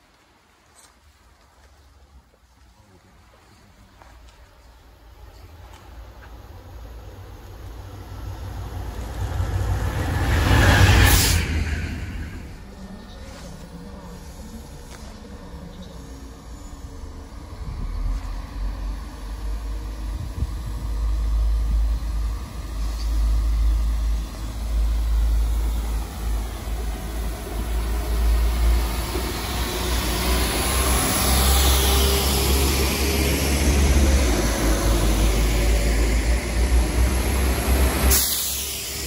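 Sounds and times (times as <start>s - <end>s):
train rumble inside carriage: 0.0s - 39.0s
high hiss: 37.6s - 39.0s.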